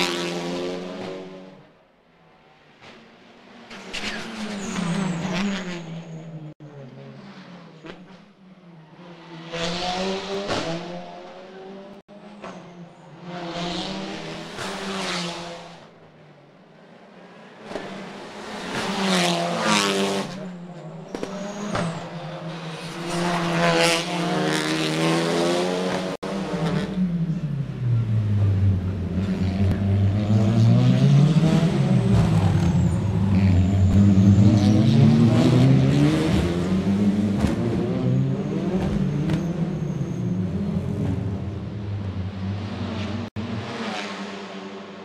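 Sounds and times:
racing cars passing at speed: 0:00.0 - 0:45.0
several engines revving: 0:21.0 - 0:45.0.

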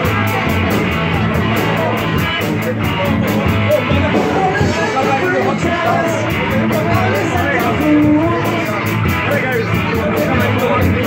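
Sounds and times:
live rock band playing: 0:00.0 - 0:11.0
male singer: 0:03.0 - 0:11.0.

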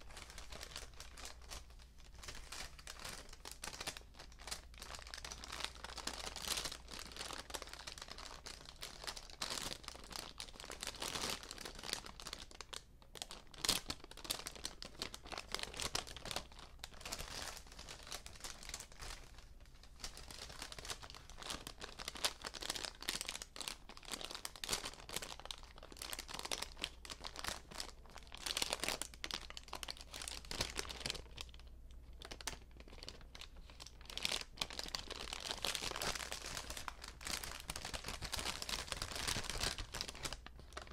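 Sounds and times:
paper bags crinkling: 0:32.2 - 0:40.9.

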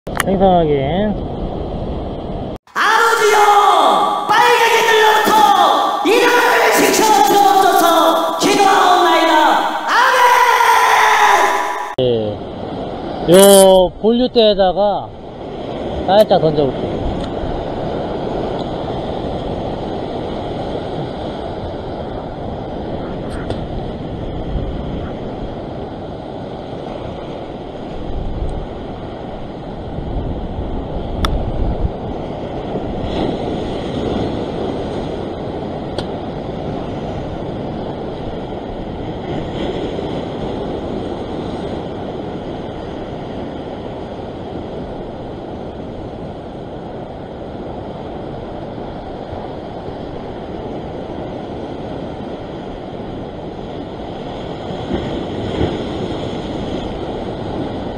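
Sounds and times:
wind buffeting microphone: 0:15.1 - 0:57.9
waves breaking over rocks: 0:32.0 - 0:57.9.

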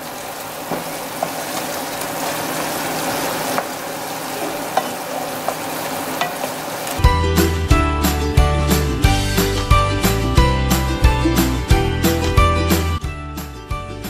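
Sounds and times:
chicken sizzling in a pan: 0:00.0 - 0:07.0.

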